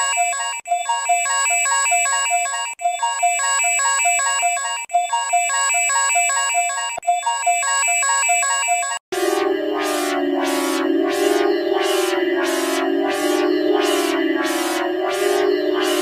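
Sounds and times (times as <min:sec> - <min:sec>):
electronic alarm beeping tones: 0:02.8 - 0:16.0.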